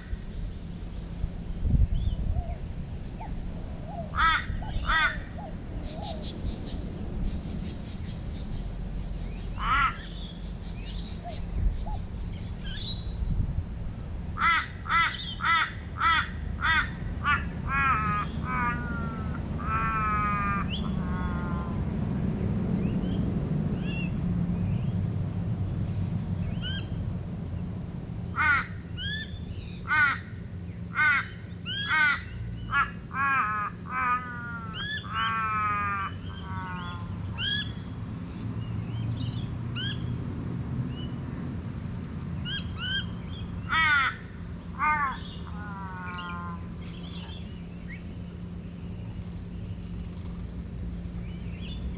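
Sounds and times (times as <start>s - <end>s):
steady low hum: 0.0s - 51.9s
crow cawing: 4.1s - 5.4s, 9.6s - 10.1s, 14.4s - 21.8s, 28.4s - 28.8s, 29.8s - 37.7s, 43.6s - 46.8s.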